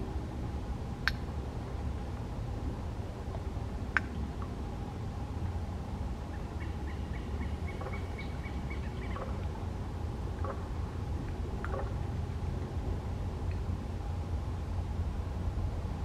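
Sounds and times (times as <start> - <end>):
steady low rumble: 0.0 - 16.0
distant bird calling: 6.2 - 9.5.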